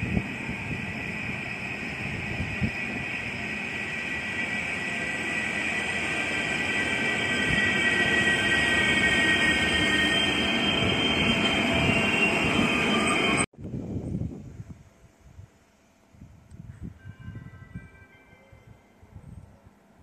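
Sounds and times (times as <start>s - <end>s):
train running: 0.0s - 13.5s.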